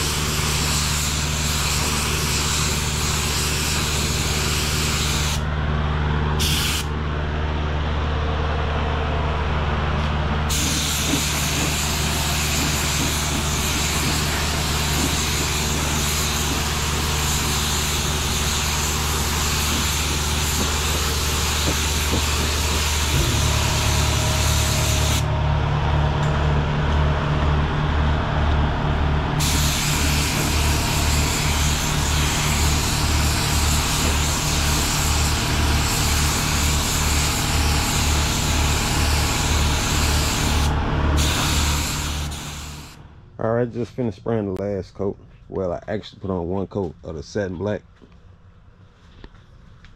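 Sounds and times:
low machine hum: 0.0s - 49.9s
spray gun hissing: 6.4s - 6.9s, 10.5s - 25.2s, 29.4s - 37.0s, 39.3s - 43.0s.

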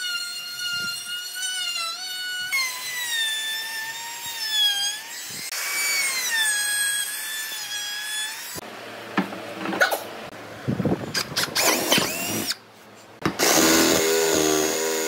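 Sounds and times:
router motor whine: 11.6s - 12.6s, 13.2s - 15.0s.

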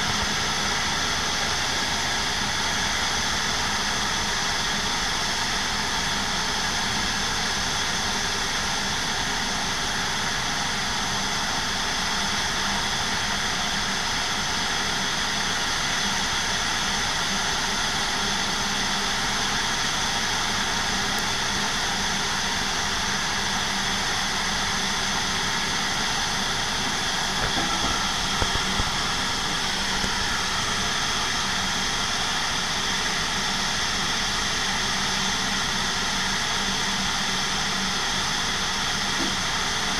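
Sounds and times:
jet engines idling: 0.0s - 39.9s
tug engine running: 20.2s - 39.9s.

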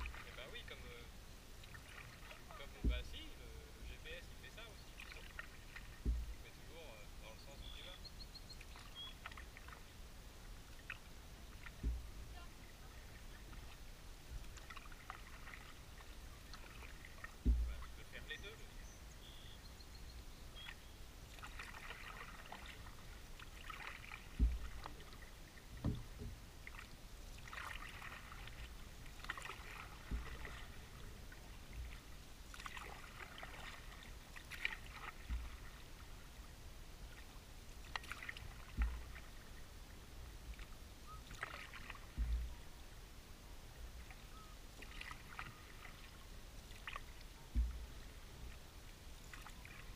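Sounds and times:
paddle swishing through water: 0.0s - 49.9s
low thumps: 2.8s - 3.2s, 5.9s - 6.5s, 11.6s - 12.4s, 17.4s - 18.2s, 24.3s - 24.9s, 25.8s - 26.4s, 42.1s - 42.6s, 47.5s - 47.9s
water dripping: 20.6s - 25.2s.

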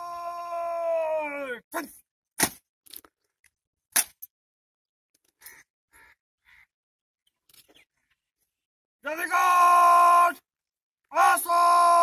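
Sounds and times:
crow cawing: 5.4s - 6.8s.

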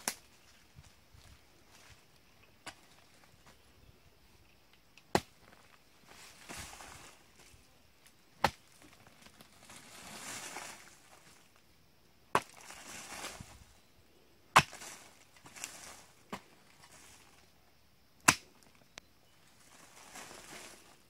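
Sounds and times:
loose earth scraping and rustling: 0.0s - 21.0s
hoe striking hard soil: 5.0s - 5.7s, 8.4s - 8.8s, 12.3s - 13.4s, 14.5s - 17.0s.

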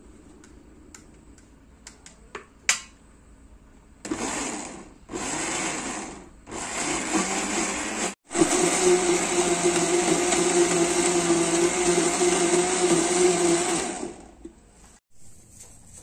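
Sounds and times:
blender chopping: 4.0s - 14.4s.

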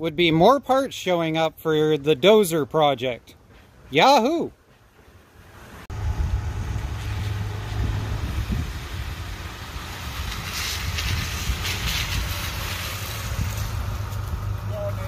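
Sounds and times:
truck engine rumbling: 1.6s - 15.0s
wind rumble on microphone: 5.9s - 15.0s
tyres on gravel: 6.5s - 15.0s.

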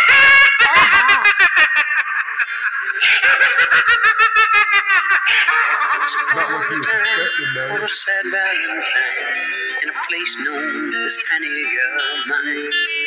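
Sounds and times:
high-pitched vocal-like notes: 0.6s - 1.3s, 6.3s - 7.9s.

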